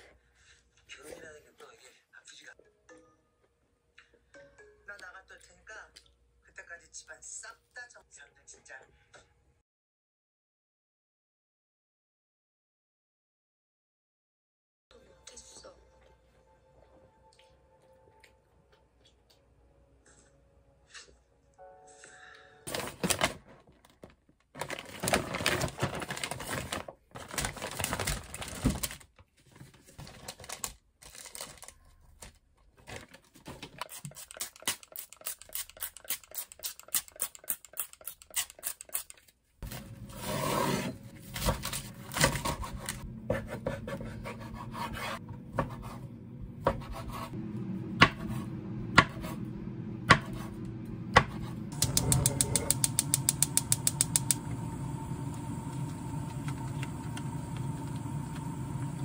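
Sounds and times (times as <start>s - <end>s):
steady low hum: 40.9s - 59.0s
knife chopping on wooden board: 46.6s - 47.3s, 48.0s - 48.4s, 49.0s - 49.3s, 50.1s - 50.5s, 51.1s - 52.7s.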